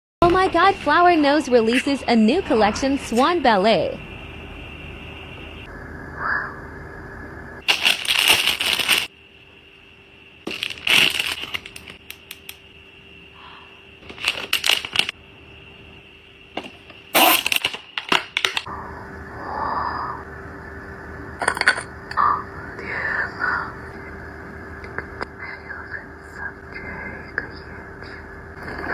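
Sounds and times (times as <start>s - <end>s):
plastic wrapping crinkling: 7.6s - 9.1s, 10.5s - 12.0s, 14.0s - 15.1s.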